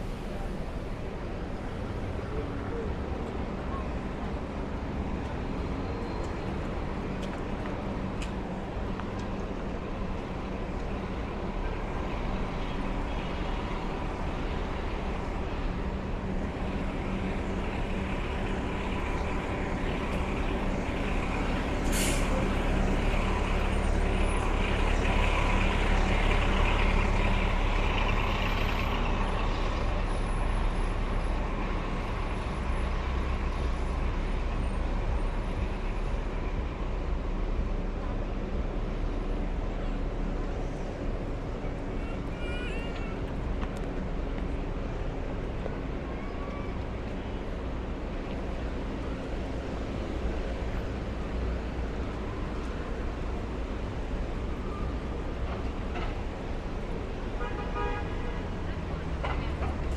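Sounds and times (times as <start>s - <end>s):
heavy vehicle engine running: 0.0s - 59.9s
street traffic: 0.0s - 59.9s
air brake hiss: 21.8s - 22.4s.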